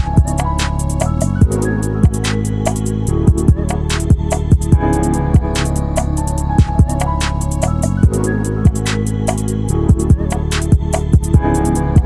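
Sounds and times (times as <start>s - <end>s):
kick drum thumps: 0.0s - 0.4s
sustained bass notes: 0.0s - 12.0s.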